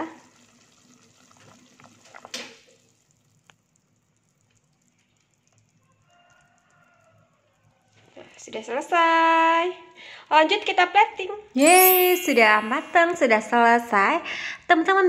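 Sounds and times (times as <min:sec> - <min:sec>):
soup bubbling in a pot: 0:00.1 - 0:08.0.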